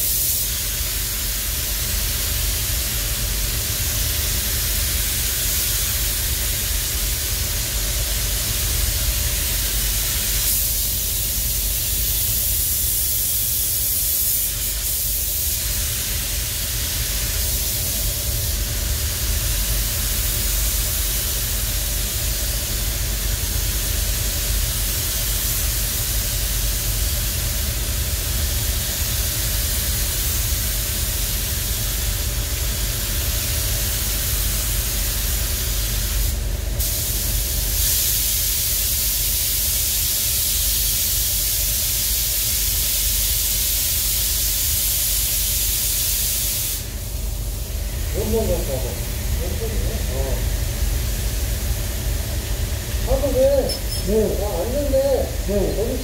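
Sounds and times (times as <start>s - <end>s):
paint spray guns hissing: 0.0s - 56.0s.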